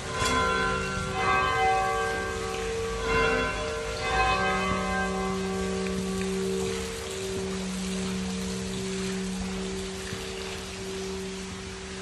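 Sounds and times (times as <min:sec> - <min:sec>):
bells ringing: 0:00.0 - 0:12.0
steady held low tone: 0:00.0 - 0:12.0.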